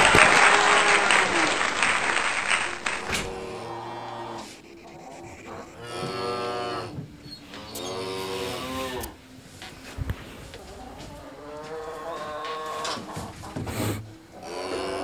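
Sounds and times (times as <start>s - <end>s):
applause: 0.0s - 3.5s
cow mooing: 3.0s - 9.2s, 14.3s - 15.0s.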